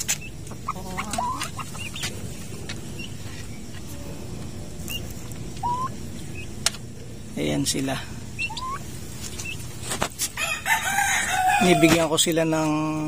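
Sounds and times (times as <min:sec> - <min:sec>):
turkey chicks peeping: 0:00.0 - 0:12.4.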